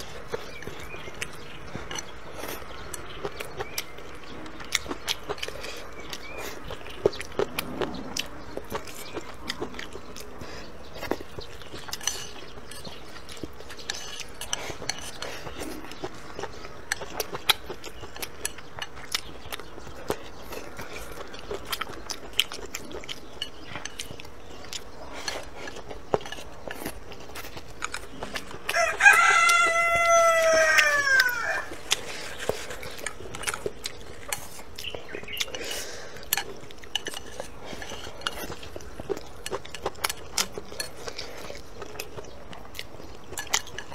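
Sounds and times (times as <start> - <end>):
clicks and taps of eating: 8.2 - 29.7, 30.7 - 43.9
rooster crowing: 28.7 - 31.8.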